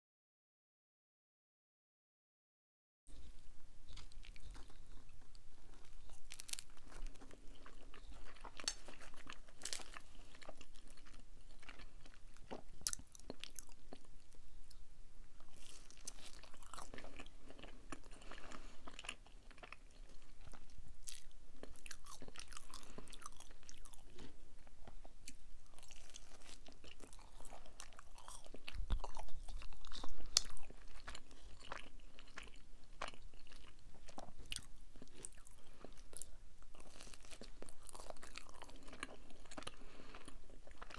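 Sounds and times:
chewing pizza: 3.1 - 14.8, 15.4 - 40.9
crust crunching: 3.9 - 13.7, 36.7 - 40.9.

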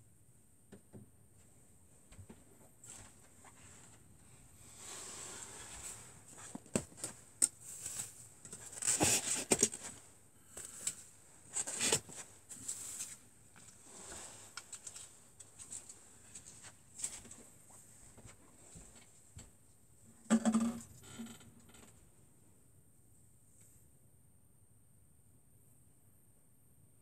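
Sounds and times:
rustles and clicks of handling: 5.4 - 19.6.

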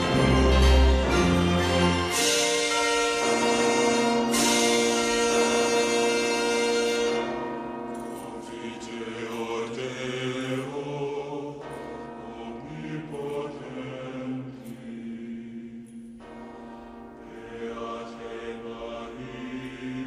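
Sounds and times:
orchestral chord: 0.0 - 8.7.

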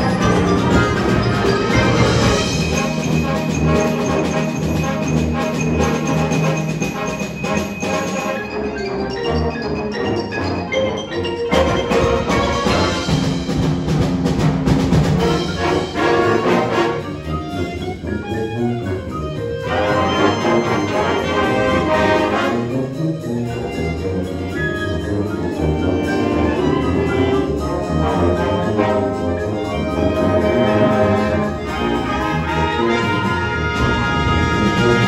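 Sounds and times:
concert band playing: 0.0 - 35.0.

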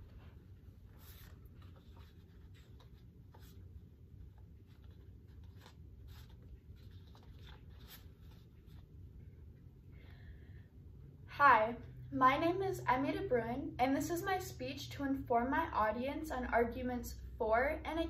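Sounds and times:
low room hum: 0.0 - 18.0
paper cards being shuffled: 4.3 - 8.9.

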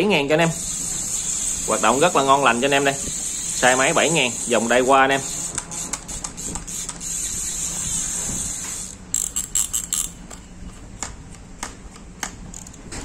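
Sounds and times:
fishing reel whirring: 0.4 - 10.2
reel clicks: 8.7 - 10.4.

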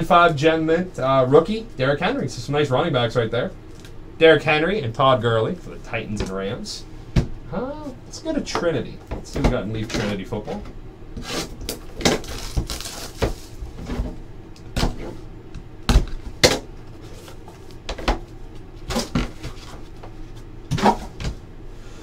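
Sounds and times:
cardboard rustling and tearing: 11.2 - 14.2.

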